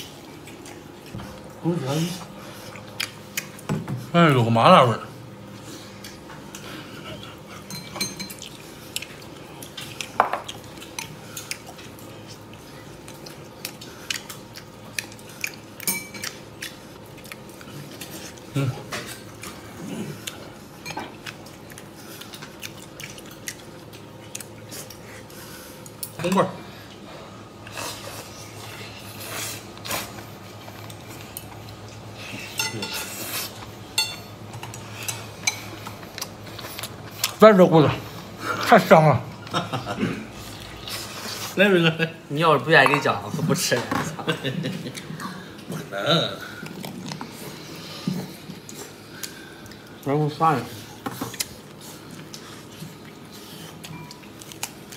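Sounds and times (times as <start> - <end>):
chopsticks clinking on bone and plate: 32.5 - 33.2, 34.0 - 35.8.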